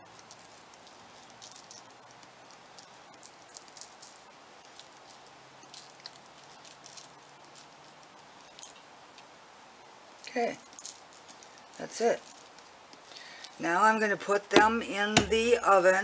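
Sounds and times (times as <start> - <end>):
sugar granules pattering on paper: 0.0 - 9.3, 10.2 - 13.6.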